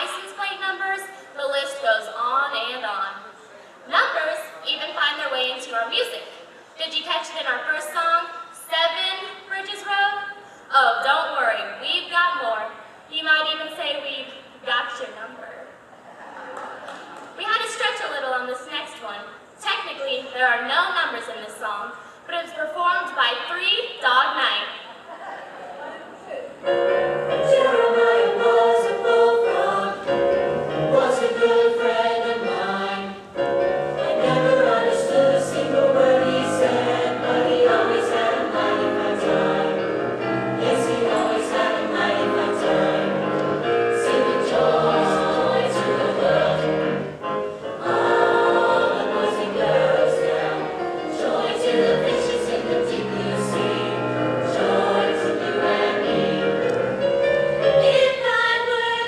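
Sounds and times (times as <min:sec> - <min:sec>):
choir singing in harmony: 0:26.1 - 0:59.0.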